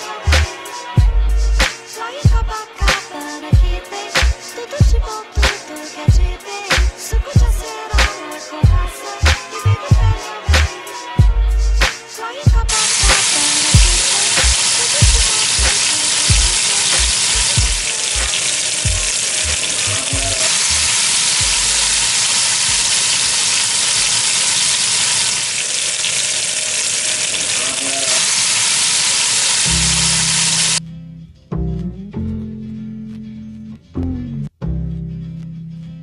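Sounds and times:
meat sizzling in hot oil: 12.7s - 30.8s.

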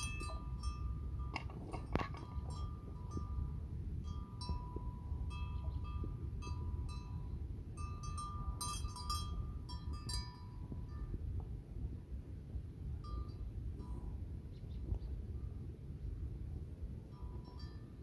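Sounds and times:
small metal bells ringing: 0.0s - 11.3s, 13.0s - 14.2s, 17.1s - 18.0s
steady low rumble: 0.0s - 18.0s.

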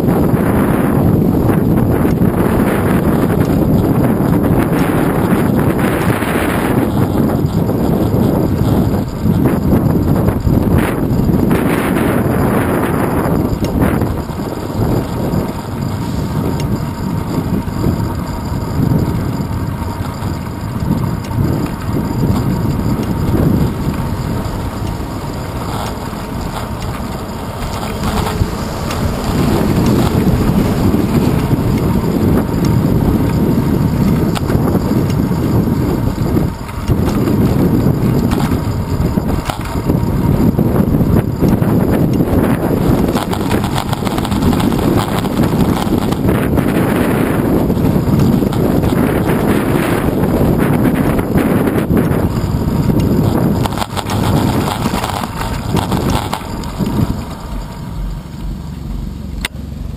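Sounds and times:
road noise and jolts: 0.0s - 59.9s
wind buffeting microphone: 0.0s - 59.9s.

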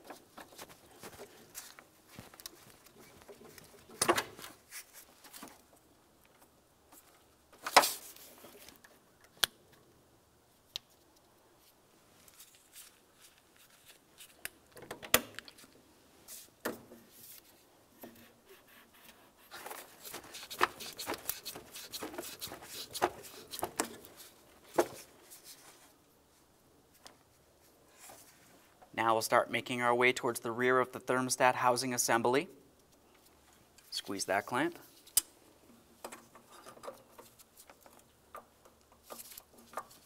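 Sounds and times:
clicks and knocks of hose clamps: 3.3s - 4.5s
rubber hose rubbing: 18.1s - 25.9s.

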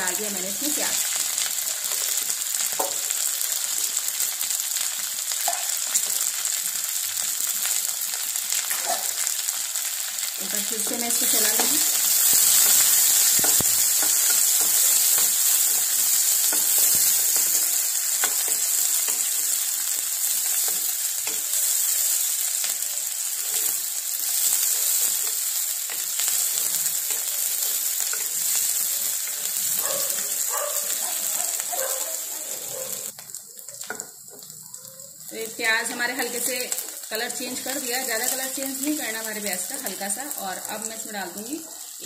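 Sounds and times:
vegetables sizzling in hot oil: 0.0s - 42.0s.

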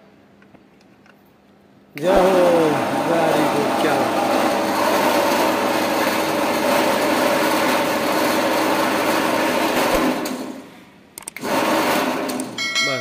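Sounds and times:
corn sheller machine whirring and rattling: 2.0s - 10.6s, 11.3s - 12.6s
sharp clicks: 11.2s - 11.5s.

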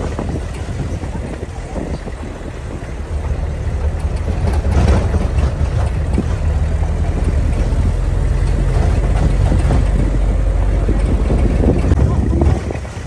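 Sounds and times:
knocks and rattles from bumps: 0.0s - 13.0s
tyres on gravel road: 0.0s - 13.0s
vehicle engine humming: 0.0s - 13.0s.

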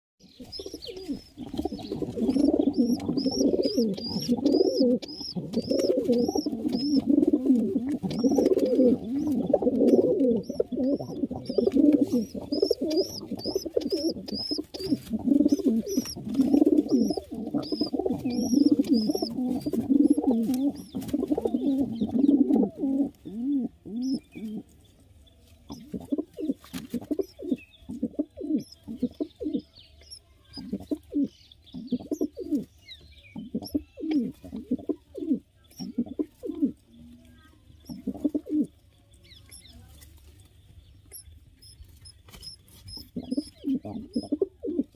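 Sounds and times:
pigeons cooing: 0.2s - 24.7s, 25.7s - 29.6s, 30.5s - 32.7s, 33.3s - 37.1s, 37.8s - 38.7s, 42.3s - 44.9s
high squeaky chirps: 8.0s - 21.0s, 41.1s - 44.4s.

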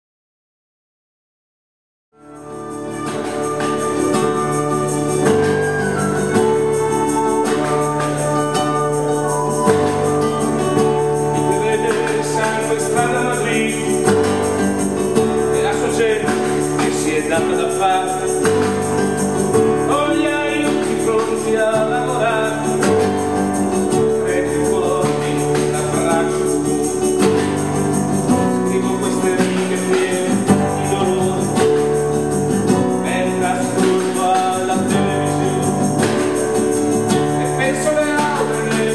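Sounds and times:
harp: 2.2s - 15.7s
acoustic guitar strummed: 2.2s - 38.9s
tambourine: 2.2s - 38.9s
violin: 2.2s - 38.9s.

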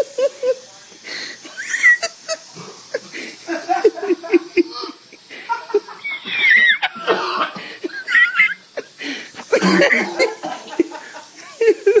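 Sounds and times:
person wheezing: 6.3s - 7.9s
person coughing: 7.0s - 7.8s, 9.5s - 10.8s.

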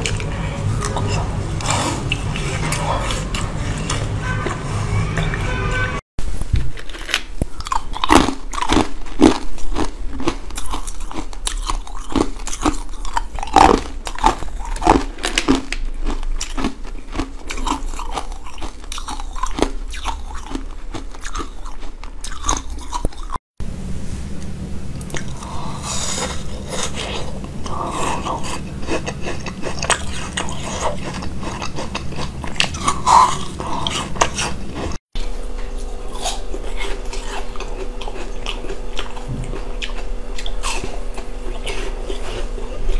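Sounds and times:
steady low hum: 0.0s - 42.9s
crunching and chewing ice cubes: 6.6s - 23.4s, 25.1s - 35.0s, 35.7s - 42.9s.

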